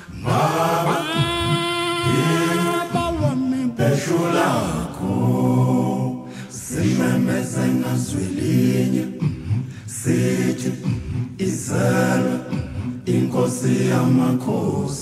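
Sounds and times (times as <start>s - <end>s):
singers breathing: 0.0s - 0.4s, 6.1s - 6.7s, 9.0s - 13.1s
a cappella choir singing: 0.0s - 15.0s.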